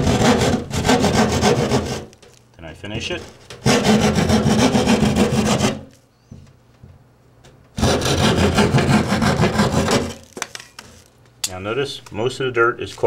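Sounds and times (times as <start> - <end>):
hand saw cutting drywall: 0.0 - 2.1, 3.6 - 5.9, 7.8 - 10.4.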